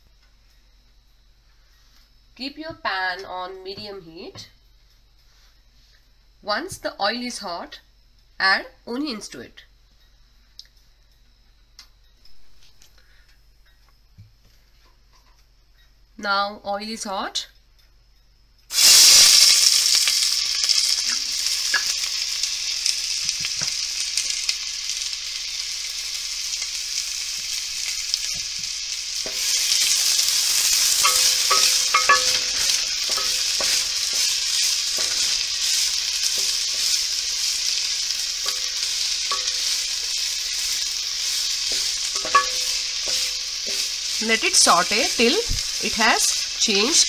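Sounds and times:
onions sizzling in hot oil: 0:18.7 - 0:47.0
spatula scraping a pot: 0:29.2 - 0:45.4.

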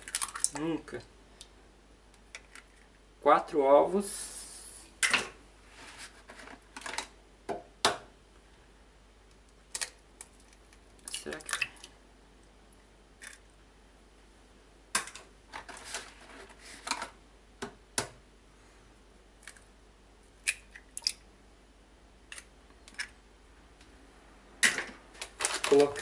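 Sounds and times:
eggshells cracking: 0:00.0 - 0:00.8, 0:09.6 - 0:11.9, 0:13.2 - 0:13.5, 0:20.4 - 0:21.2.

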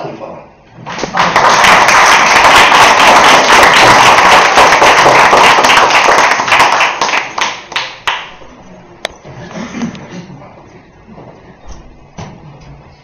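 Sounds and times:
audience applauding: 0:00.9 - 0:08.4.

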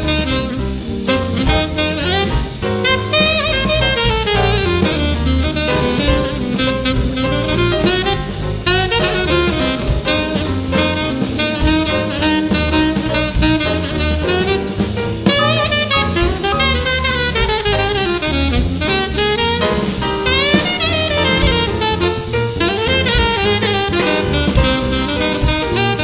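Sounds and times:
drum kit: 0:00.0 - 0:26.0
saxophone melody: 0:00.0 - 0:26.0.

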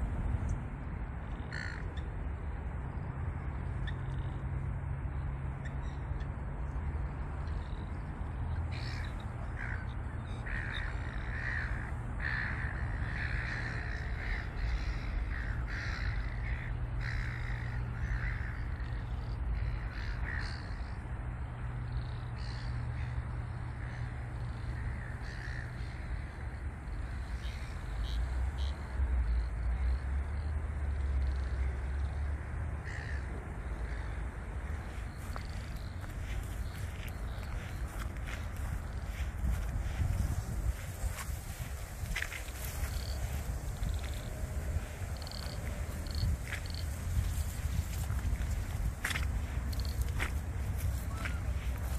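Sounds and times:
ravens cawing: 0:01.5 - 0:01.8, 0:08.7 - 0:21.0, 0:22.4 - 0:26.6, 0:31.4 - 0:51.9.

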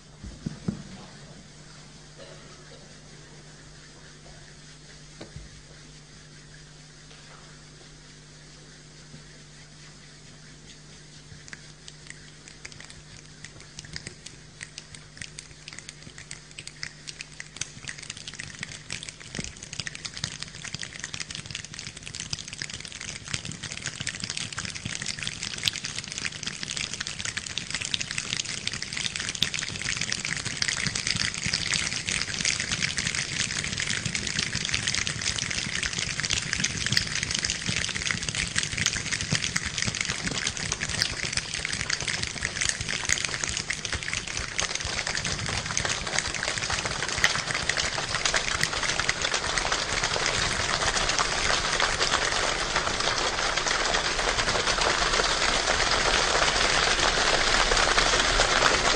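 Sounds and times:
finger snaps and clicks imitating rain: 0:10.7 - 0:50.9.

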